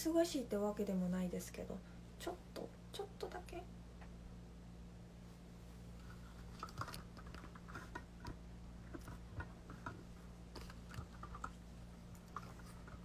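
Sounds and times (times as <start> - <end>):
low steady hum: 0.0 - 13.0
small clicks and taps: 6.6 - 13.0.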